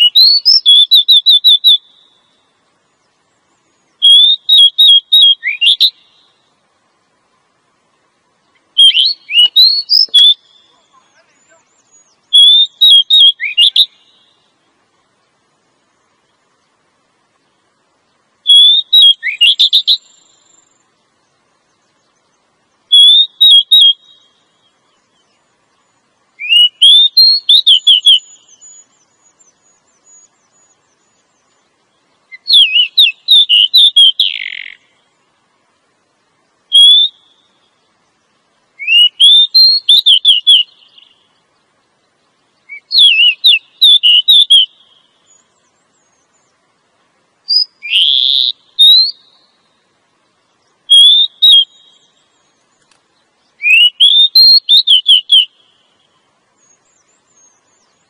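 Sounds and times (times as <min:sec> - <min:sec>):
bird whistled chirps: 0:00.0 - 0:02.4, 0:03.6 - 0:06.4, 0:08.8 - 0:14.4, 0:18.4 - 0:20.8, 0:22.9 - 0:25.4, 0:26.4 - 0:31.6, 0:32.3 - 0:34.9, 0:36.7 - 0:37.6, 0:38.8 - 0:41.3, 0:42.6 - 0:46.5, 0:47.5 - 0:49.6, 0:50.6 - 0:52.9, 0:53.6 - 0:58.0.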